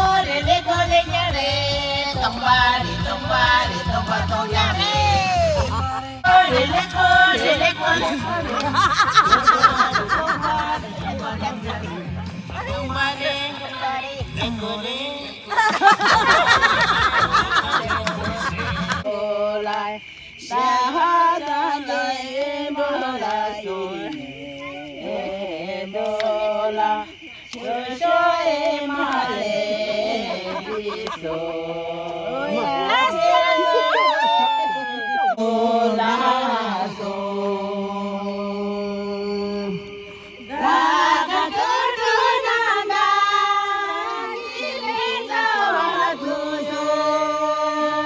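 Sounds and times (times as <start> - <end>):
person singing unaccompanied: 0.0 - 34.0, 35.3 - 48.0.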